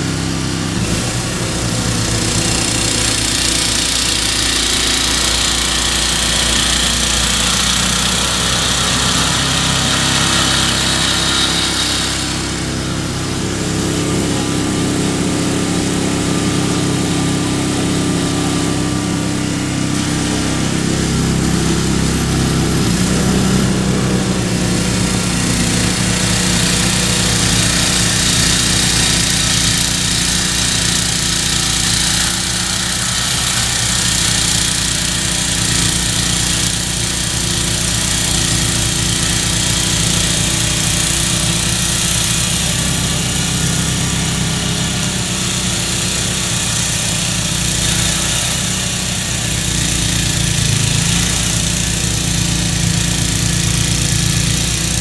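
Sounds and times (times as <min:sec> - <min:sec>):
snowblower running under load: 0:00.0 - 0:55.0.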